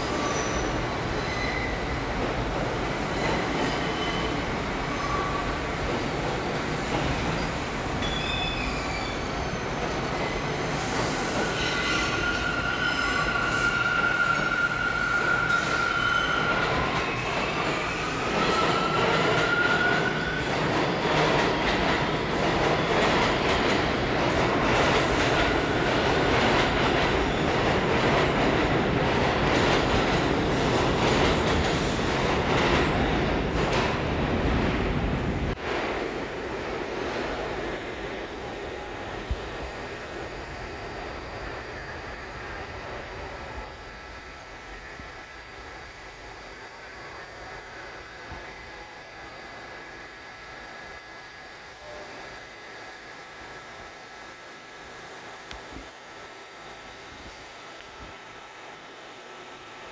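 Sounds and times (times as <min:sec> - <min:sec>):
wheels squealing on rails: 0:00.0 - 0:06.0, 0:06.8 - 0:23.8
subway train running: 0:00.0 - 0:59.9.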